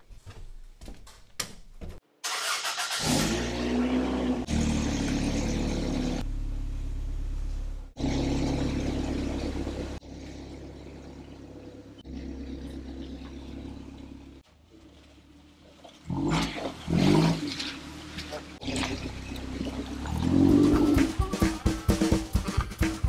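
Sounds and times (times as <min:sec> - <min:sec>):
van engine running: 0:03.3 - 0:16.2.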